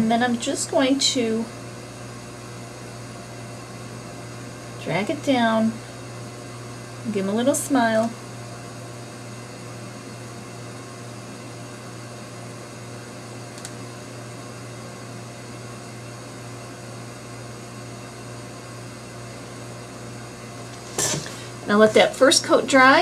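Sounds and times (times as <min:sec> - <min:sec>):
faint click: 0:13.6 - 0:13.8.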